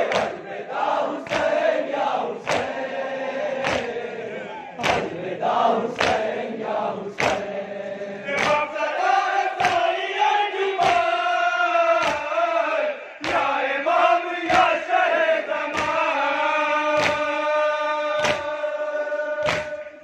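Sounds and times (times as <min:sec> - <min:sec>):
hands beating chests: 0:00.0 - 0:00.5, 0:01.2 - 0:01.8, 0:02.4 - 0:02.8, 0:03.6 - 0:04.0, 0:04.8 - 0:05.3, 0:05.9 - 0:06.4, 0:07.1 - 0:07.5, 0:08.3 - 0:08.8, 0:09.5 - 0:10.0, 0:10.7 - 0:11.2, 0:11.9 - 0:12.4, 0:13.2 - 0:13.6, 0:14.4 - 0:14.9, 0:15.6 - 0:16.1, 0:16.9 - 0:17.4, 0:18.1 - 0:18.7, 0:19.4 - 0:19.9
men chanting in chorus: 0:00.0 - 0:20.0.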